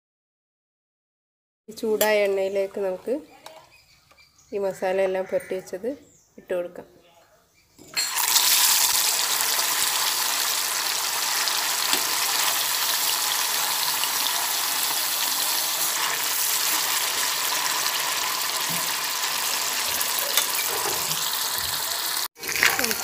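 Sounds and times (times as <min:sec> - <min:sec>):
meat frying in hot oil: 0:08.0 - 0:23.0.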